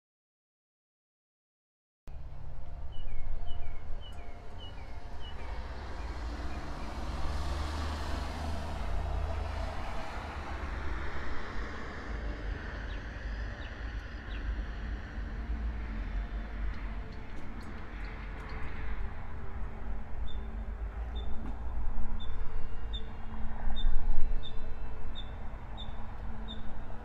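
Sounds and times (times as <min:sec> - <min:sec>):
vehicle passing: 0:04.5 - 0:21.6.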